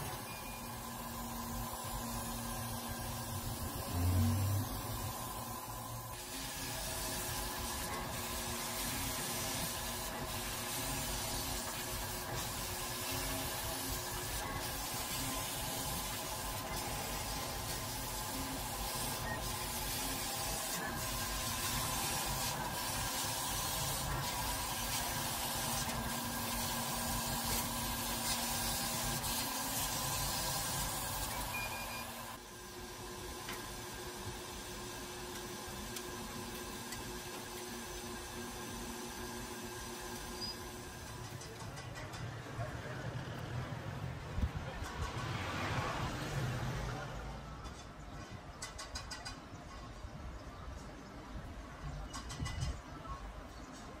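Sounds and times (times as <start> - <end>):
laser cutting machine hiss and hum: 0.0 - 41.6.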